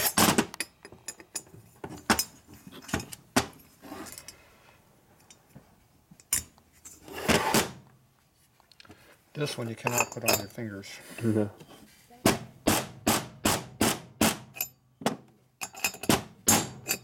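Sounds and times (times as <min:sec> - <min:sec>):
metallic clinks and knocks of tools: 0:00.0 - 0:04.4, 0:05.2 - 0:07.0, 0:09.8 - 0:10.6, 0:14.5 - 0:14.8, 0:15.6 - 0:17.0.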